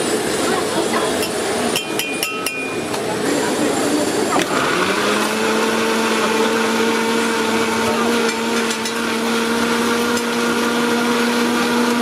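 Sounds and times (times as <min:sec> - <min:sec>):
blender motor whining: 0:03.2 - 0:12.0.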